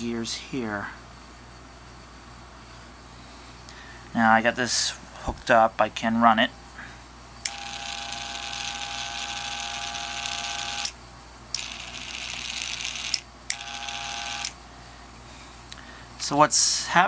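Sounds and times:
motor gearbox whine: 7.4 - 14.6.

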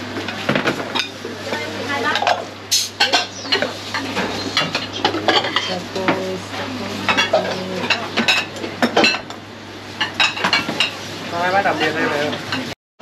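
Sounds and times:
bowls and utensils clinking: 0.2 - 9.3, 10.0 - 11.0.

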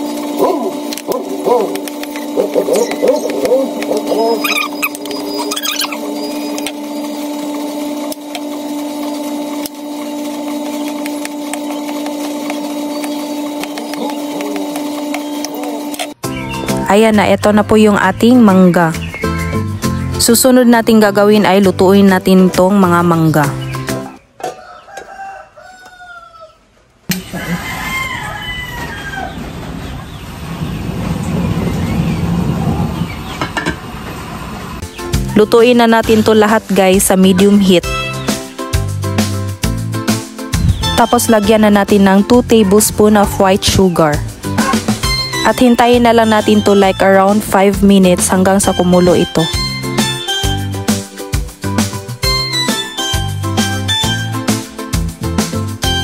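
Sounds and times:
gas stove burner hissing: 0.0 - 16.2
steady electric hum: 0.0 - 24.2, 30.4 - 52.3
rooster calling: 0.1 - 7.6, 11.6 - 16.8, 24.1 - 30.0, 40.8 - 45.6
chickens clucking: 0.1 - 16.7, 23.7 - 30.5.

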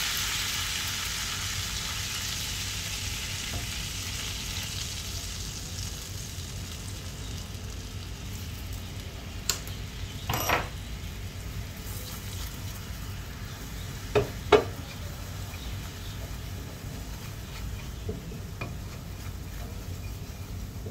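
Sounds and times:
sauce sizzling in a frying pan: 0.0 - 20.9
wooden spoon stirring: 11.8 - 20.9
spoon knocking against pan: 14.1 - 14.8.

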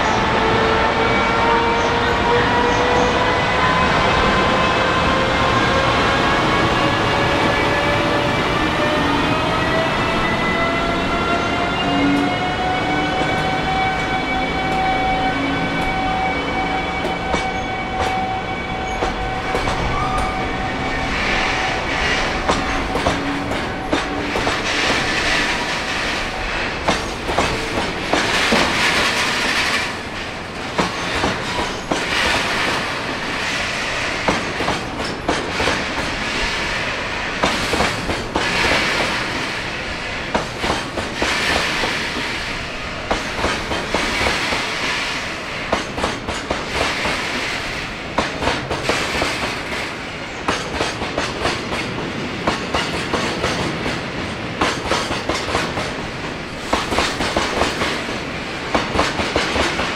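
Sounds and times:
hiss of passing wagons: 20.8 - 45.7, 46.6 - 49.6
train wheels clicking over rail joints: 21.9 - 36.7, 37.4 - 39.7, 40.3 - 45.0, 45.7 - 59.9.

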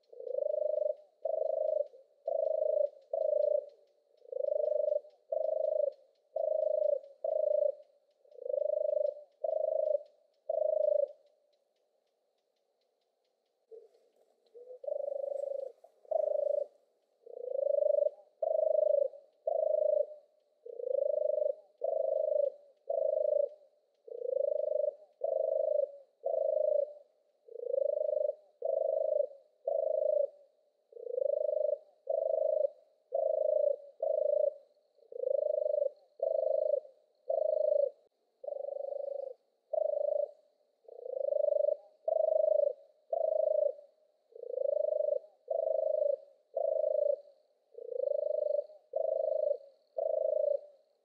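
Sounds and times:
turtle dove purring song: 0.0 - 51.0.

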